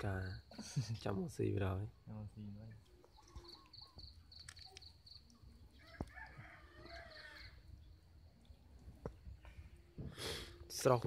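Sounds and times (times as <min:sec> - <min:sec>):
rooster crowing faintly: 0:05.8 - 0:07.7.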